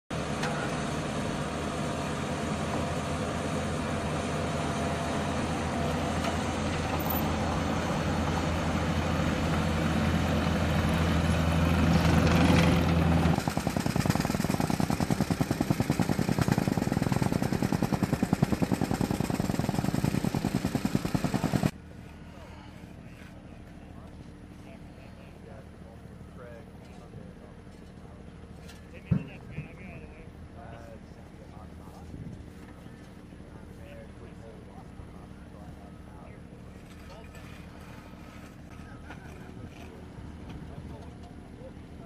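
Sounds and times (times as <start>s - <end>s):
diesel engine running: 0.1s - 42.0s
jumping-jack rammers pounding: 11.8s - 21.7s.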